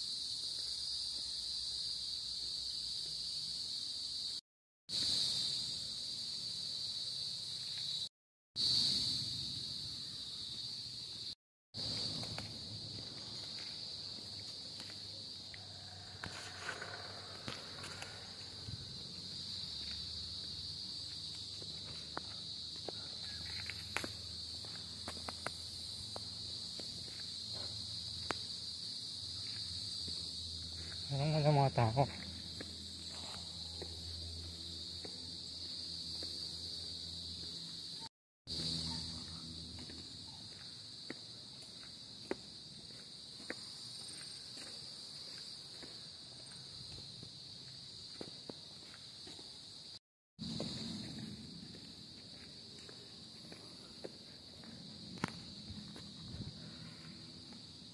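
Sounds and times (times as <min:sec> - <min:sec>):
insect chorus drone: 0:00.0 - 0:57.9
footsteps on pavement: 0:11.8 - 0:31.1, 0:32.1 - 0:57.7.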